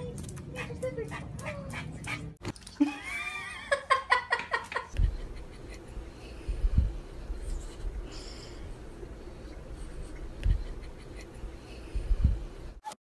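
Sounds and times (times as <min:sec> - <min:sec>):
soft low thumps: 0:06.5 - 0:07.1, 0:10.3 - 0:10.8, 0:12.0 - 0:12.5.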